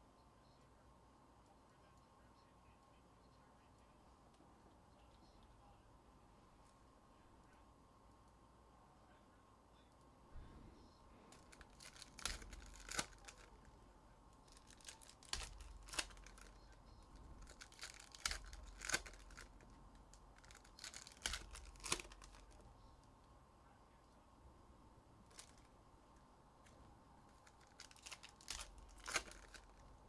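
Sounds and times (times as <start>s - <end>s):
card pack wrappers ripping: 11.3s - 13.6s, 14.5s - 16.6s, 17.4s - 19.6s, 20.4s - 22.6s, 25.3s - 25.7s, 27.4s - 30.0s
wrapper crinkling: 11.3s - 13.7s, 14.5s - 16.8s, 17.4s - 19.6s, 20.4s - 22.6s, 25.2s - 25.7s, 27.3s - 30.0s.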